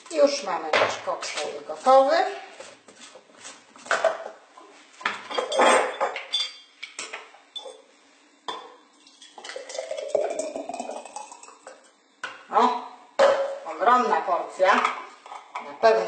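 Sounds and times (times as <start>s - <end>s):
thick smoothie pouring into jar: 9.0s - 11.7s.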